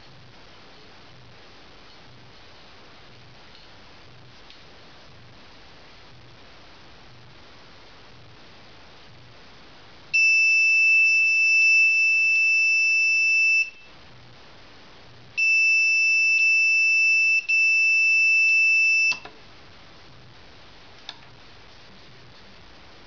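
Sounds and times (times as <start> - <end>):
high-pitched buzzer alarm tone: 10.2 - 13.9, 15.4 - 19.3
buzzer click: 18.4 - 19.3.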